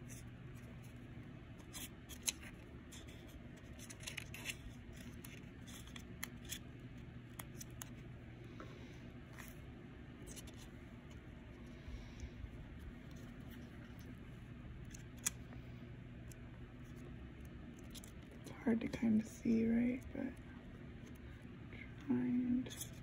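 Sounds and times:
steady low hum: 0.0 - 23.0
paper pages rustling: 1.6 - 6.7, 10.2 - 11.3.

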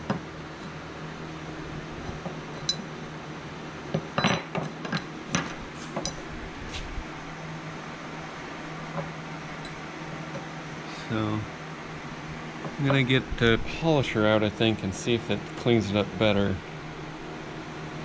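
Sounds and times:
metal clinks and knocks: 2.1 - 2.9, 3.9 - 6.2.

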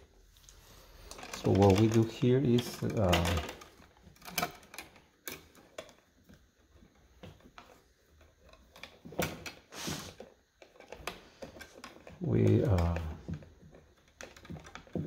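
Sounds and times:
wire strippers clicking and snipping: 1.1 - 6.4, 10.6 - 15.0.

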